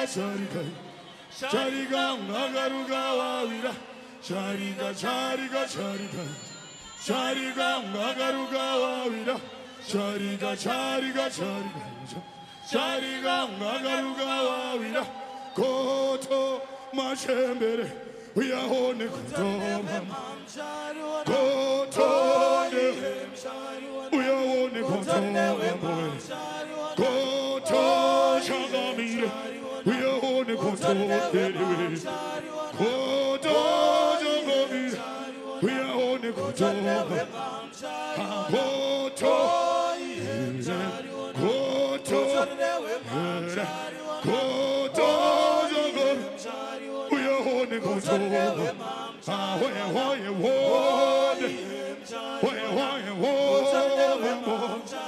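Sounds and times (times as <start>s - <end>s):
voices singing a chant: 0.0s - 55.0s.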